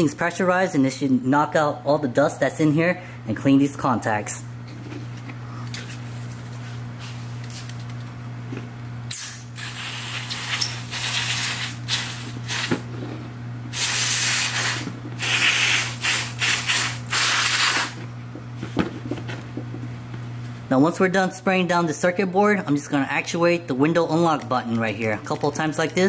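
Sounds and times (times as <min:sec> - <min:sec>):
aerosol can spraying: 0:09.1 - 0:12.8, 0:13.7 - 0:18.0.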